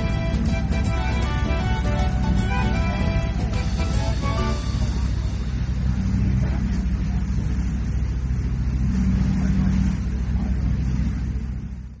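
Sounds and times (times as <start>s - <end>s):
boat engine rumbling: 0.0s - 12.0s.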